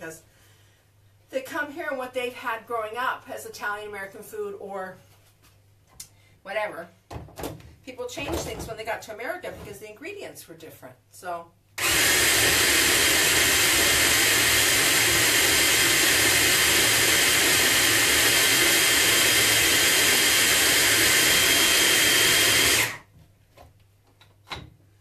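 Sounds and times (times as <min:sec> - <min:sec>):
food processor motor running: 0:11.8 - 0:23.1.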